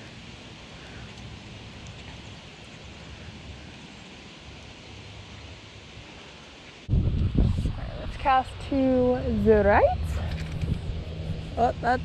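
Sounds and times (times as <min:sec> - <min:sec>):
outdoor rustling: 0:00.0 - 0:12.0
faint ticks: 0:00.8 - 0:03.8
wind on microphone: 0:06.9 - 0:12.0.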